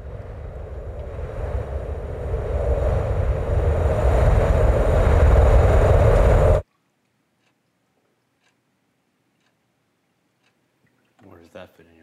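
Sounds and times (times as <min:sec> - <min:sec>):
loud rushing noise with deep rumble: 0:00.0 - 0:06.6
faint clock ticking: 0:06.6 - 0:12.0.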